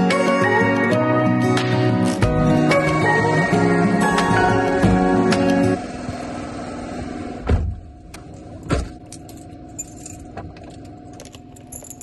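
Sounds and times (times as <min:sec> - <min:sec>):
car keys jingling: 0:09.0 - 0:12.0.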